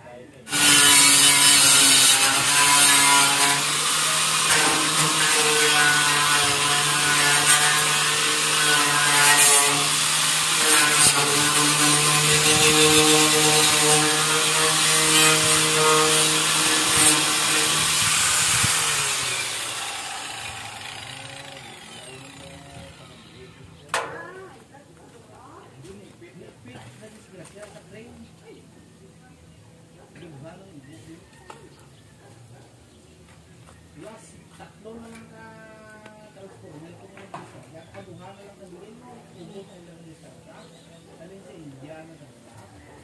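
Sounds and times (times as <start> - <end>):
power tool scraping rust off metal: 0.5 - 24.2.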